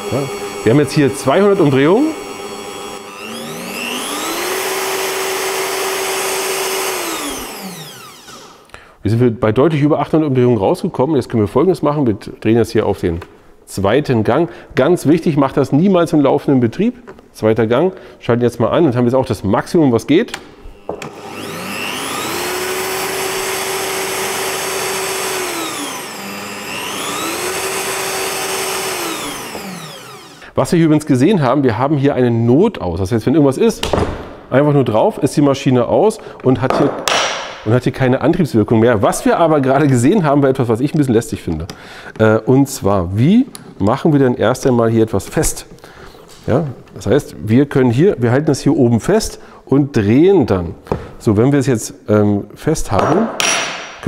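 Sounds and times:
drill motor whine: 0:00.0 - 0:08.7, 0:20.8 - 0:30.5.

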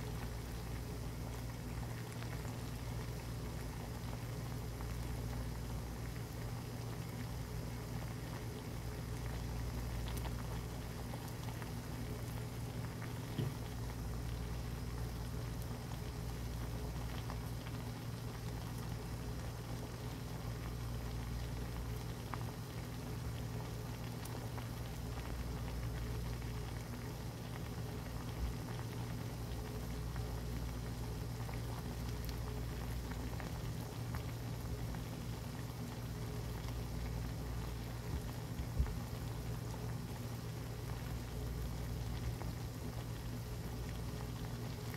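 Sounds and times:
low steady hum: 0:00.0 - 0:44.9
soup bubbling and popping: 0:00.0 - 0:44.9
faint knock: 0:13.3 - 0:13.6.

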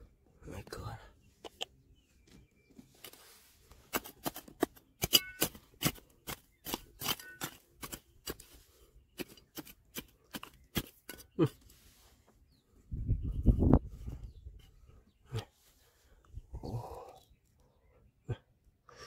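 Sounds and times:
hand tool striking stone: 0:03.9 - 0:08.4.

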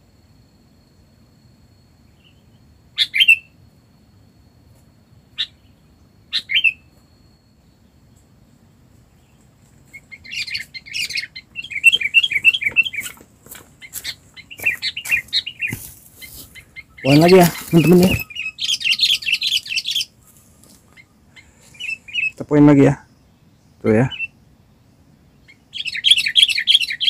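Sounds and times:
bulbul calls: 0:02.2 - 0:03.6, 0:05.3 - 0:06.9, 0:09.2 - 0:24.6, 0:25.2 - 0:27.0.

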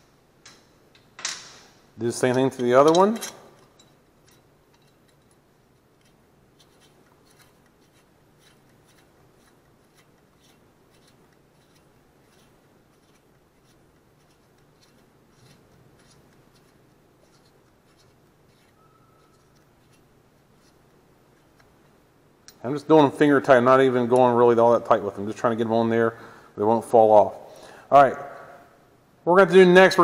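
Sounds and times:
low steady hum: 0:00.0 - 0:29.9
small clicks and scrapes of nuts: 0:04.2 - 0:22.0.

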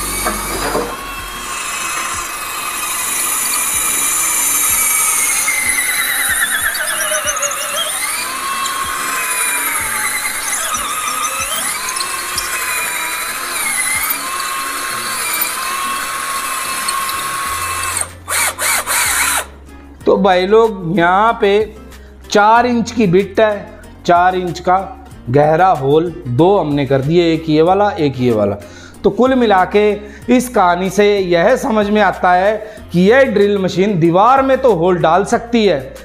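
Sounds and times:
cordless drill whining: 0:00.0 - 0:19.6.

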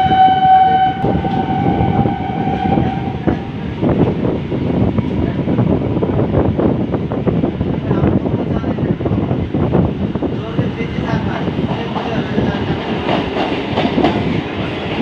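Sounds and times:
train horn: 0:00.0 - 0:03.6
train wheels clattering: 0:11.2 - 0:15.0.

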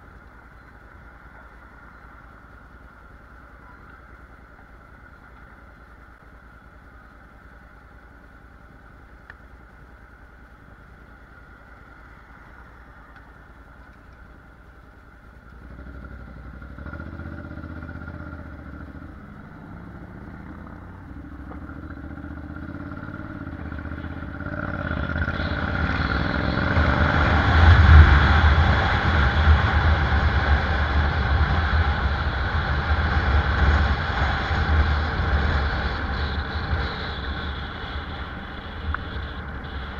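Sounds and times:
motorcycle engine: 0:15.4 - 0:39.9
wind rushing over microphone: 0:24.8 - 0:39.9.

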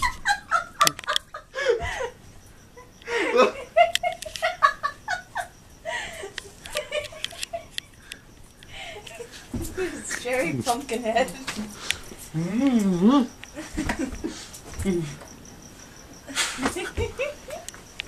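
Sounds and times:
laughter in rhythmic pulses: 0:00.0 - 0:02.2, 0:02.8 - 0:08.0, 0:13.5 - 0:15.2, 0:16.3 - 0:18.0.

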